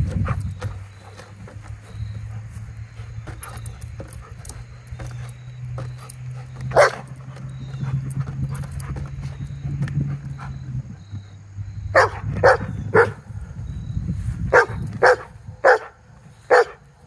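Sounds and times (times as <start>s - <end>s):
steady low hum: 0.0s - 17.0s
dog barking: 6.7s - 7.1s, 12.0s - 13.2s, 14.5s - 16.8s.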